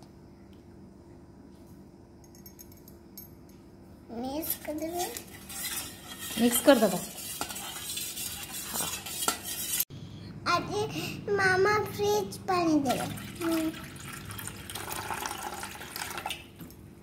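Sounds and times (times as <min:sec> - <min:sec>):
spoon scraping metal bowl: 0:04.6 - 0:09.9.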